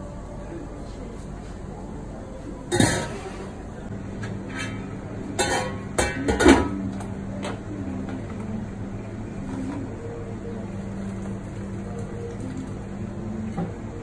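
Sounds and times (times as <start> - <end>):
steady mechanical hum: 0.0 - 14.0
metal lid and tongs clanking: 2.7 - 3.2, 4.5 - 6.8.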